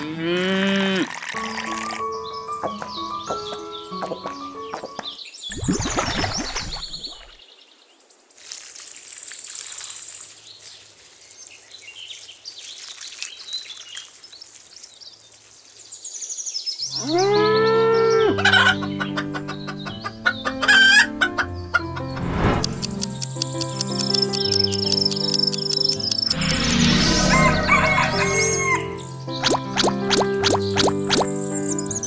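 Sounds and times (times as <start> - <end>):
water trickling from watering can: 0.4 - 2.0, 8.4 - 11.2, 12.1 - 15.4
music: 1.3 - 5.2, 17.0 - 32.0
rooster crowing: 27.2 - 29.0.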